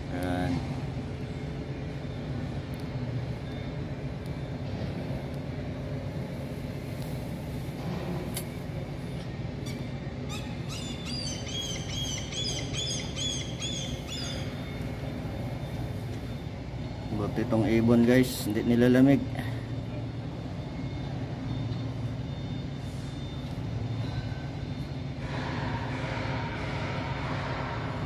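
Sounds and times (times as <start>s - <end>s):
machinery rumble: 0.0s - 28.0s
bird calling high notes: 9.7s - 15.2s.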